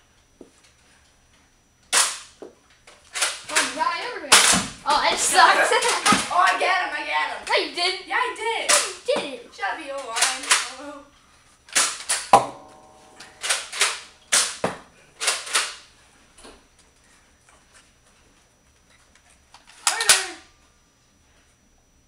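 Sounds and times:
toy dart blasters firing: 0:01.9 - 0:02.4, 0:03.2 - 0:06.5, 0:08.7 - 0:09.2, 0:10.0 - 0:10.8, 0:11.7 - 0:15.8, 0:19.8 - 0:20.4
short ringing: 0:12.4 - 0:14.3.

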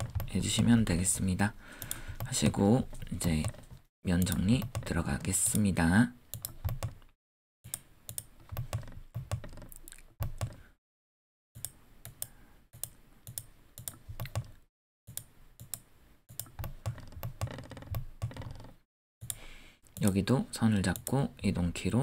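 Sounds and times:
computer mouse clicking: 0:01.8 - 0:05.7, 0:06.3 - 0:07.1, 0:07.7 - 0:10.6, 0:11.6 - 0:20.2
computer keyboard clicking: 0:02.9 - 0:04.9, 0:06.4 - 0:07.1, 0:08.1 - 0:10.6, 0:12.8 - 0:14.6, 0:15.2 - 0:19.4.

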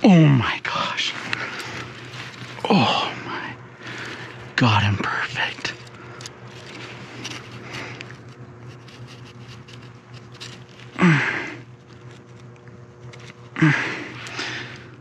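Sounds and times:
rustling: 0:01.1 - 0:03.1, 0:03.8 - 0:04.6, 0:05.6 - 0:11.0
man breathing hard: 0:02.6 - 0:04.5, 0:11.0 - 0:11.7, 0:13.5 - 0:15.0
breathy sighs: 0:11.0 - 0:11.7, 0:13.6 - 0:15.0.

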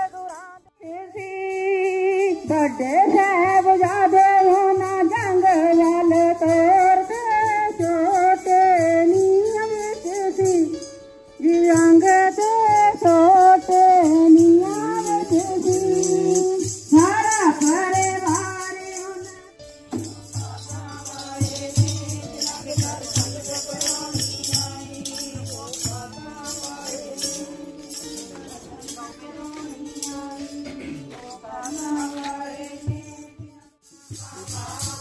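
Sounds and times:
jingling hand percussion: 0:00.0 - 0:35.0
lead voice singing: 0:11.7 - 0:35.0
group singing hymns: 0:14.3 - 0:19.2, 0:19.9 - 0:35.0.

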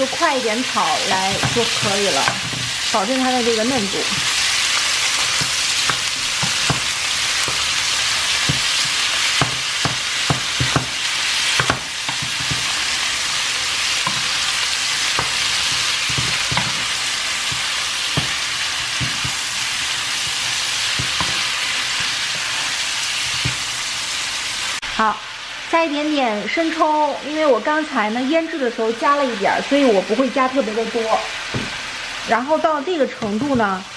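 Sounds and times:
meat sizzling in frying pan: 0:00.0 - 0:33.9
wooden spoon scraping pan: 0:01.0 - 0:13.0.

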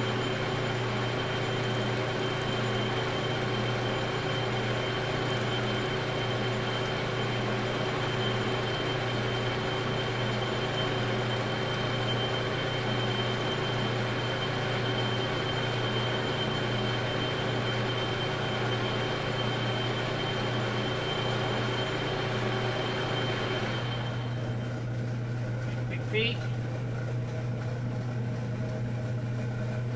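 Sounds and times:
metal lathe motor humming: 0:00.0 - 0:29.9.

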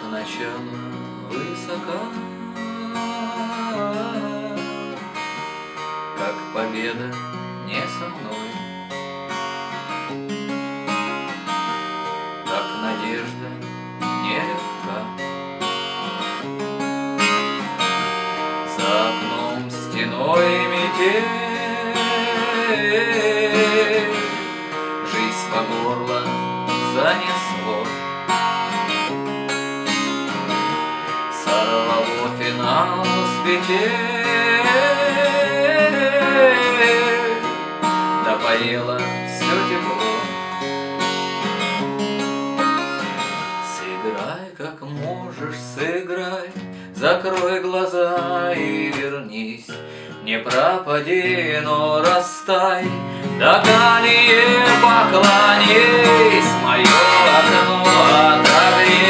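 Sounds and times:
man singing: 0:00.0 - 0:05.0, 0:06.2 - 0:08.6, 0:12.4 - 0:15.2, 0:18.7 - 0:28.0, 0:29.9 - 0:40.5, 0:43.0 - 0:59.0
fingerpicked acoustic guitar: 0:00.0 - 0:59.0.

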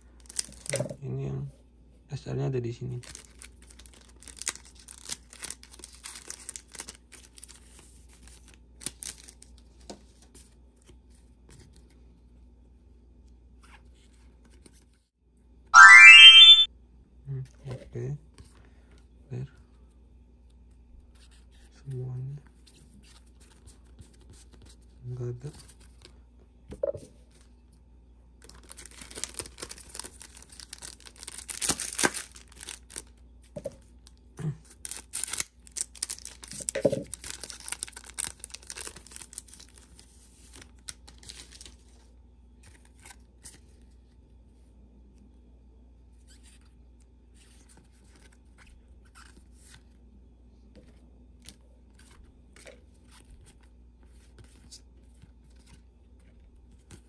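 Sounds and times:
wrapper tearing and crinkling: 0:00.2 - 0:00.8, 0:03.0 - 0:09.5, 0:28.4 - 0:33.2, 0:34.7 - 0:41.9.

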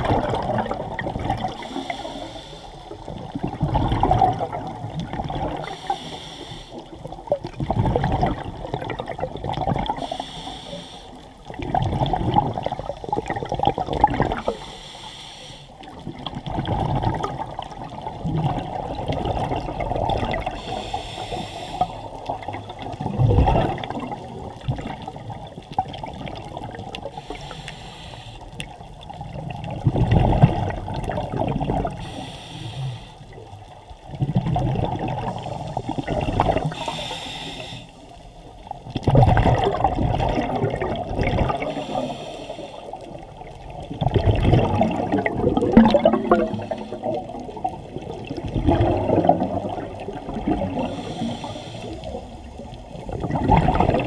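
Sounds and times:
exhaled bubbles rumbling: 0:00.0 - 0:06.0, 0:06.8 - 0:10.2, 0:11.3 - 0:14.6, 0:15.8 - 0:21.4, 0:22.0 - 0:27.6, 0:28.5 - 0:54.0
regulator inhale hiss: 0:01.5 - 0:03.2, 0:05.6 - 0:07.0, 0:10.0 - 0:11.4, 0:14.4 - 0:15.9, 0:20.5 - 0:22.2, 0:27.1 - 0:28.8, 0:31.9 - 0:33.5, 0:35.3 - 0:38.8, 0:41.6 - 0:43.5, 0:46.5 - 0:47.4, 0:50.8 - 0:52.9.

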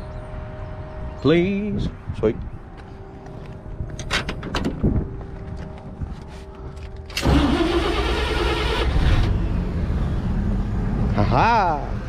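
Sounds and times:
engine cranking on starter: 0:07.1 - 0:09.4.

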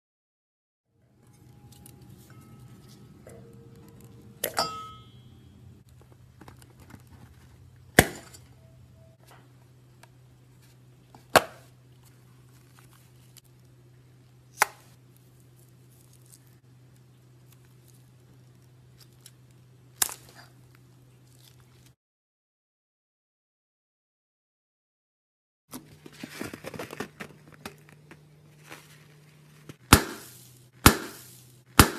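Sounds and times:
steady low hum: 0:01.0 - 0:22.0.

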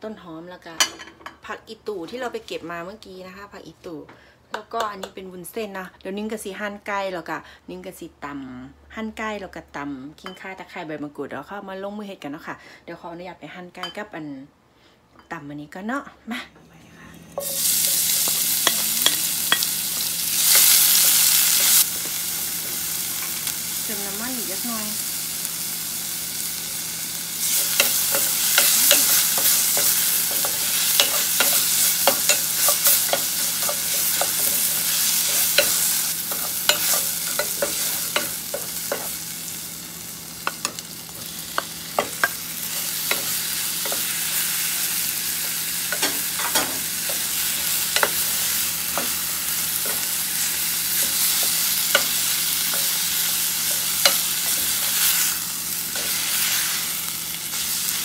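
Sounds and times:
paste sizzling in oil: 0:17.3 - 0:58.0.

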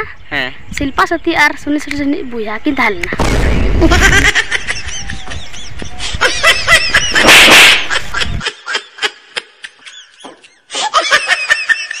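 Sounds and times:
loud slap-like hit: 0:03.2 - 0:03.8.

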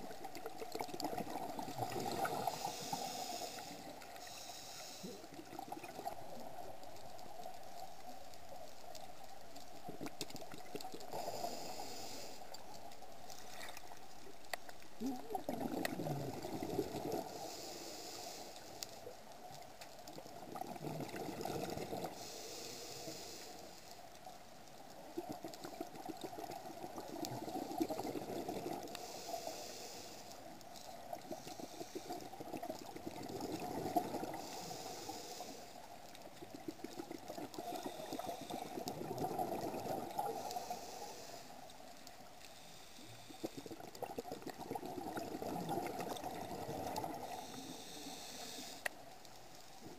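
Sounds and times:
exhaled bubbles rushing: 0:00.0 - 0:02.6, 0:15.3 - 0:17.3, 0:20.4 - 0:22.1, 0:32.4 - 0:34.4, 0:36.4 - 0:40.5, 0:43.4 - 0:47.4
regulator inhalation hiss: 0:02.2 - 0:05.3, 0:11.1 - 0:12.6, 0:17.2 - 0:19.0, 0:22.1 - 0:24.0, 0:29.0 - 0:30.6, 0:34.3 - 0:35.9, 0:40.3 - 0:41.7, 0:47.2 - 0:48.9.

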